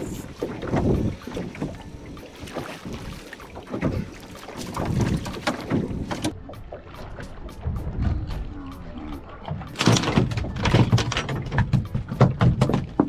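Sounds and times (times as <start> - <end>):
wind buffeting microphone: 0.0 - 6.4
water slapping against hull: 0.0 - 13.0.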